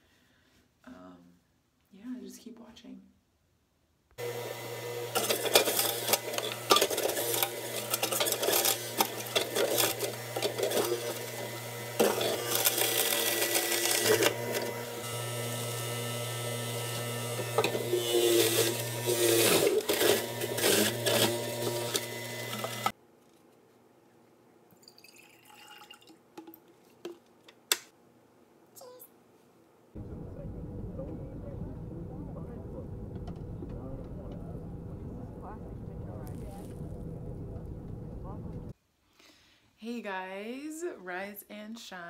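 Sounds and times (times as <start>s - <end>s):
juicer grinding bursts: 4.2s - 23.0s
juicer motor hum: 4.2s - 23.0s, 30.0s - 38.7s.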